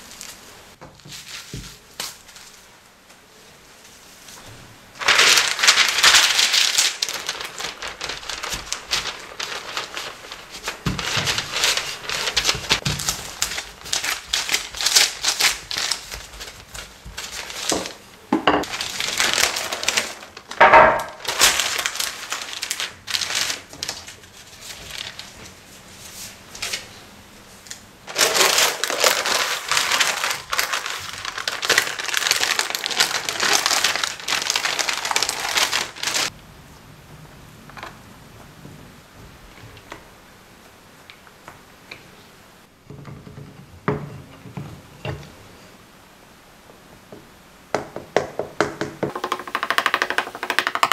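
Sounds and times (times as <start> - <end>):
parchment paper rustling: 0.0 - 36.4, 49.1 - 50.9.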